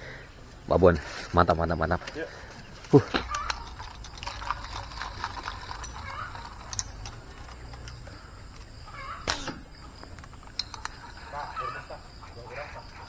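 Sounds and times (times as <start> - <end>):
faint animal calls: 5.9 - 10.1, 10.7 - 13.0
sharp crack: 9.2 - 11.0.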